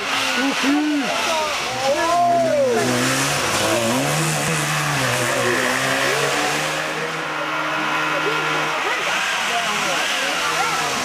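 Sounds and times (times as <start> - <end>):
rally car engine revving past: 2.3 - 11.0.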